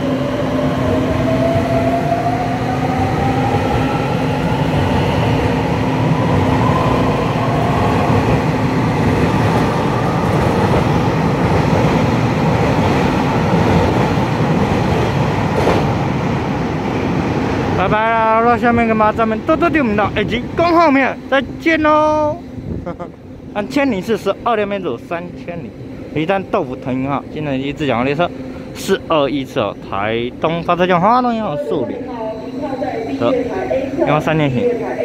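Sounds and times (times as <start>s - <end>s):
wheels rumbling on rail: 0.0s - 35.0s
train traction motor whine: 18.2s - 35.0s
steady low hum: 19.3s - 35.0s.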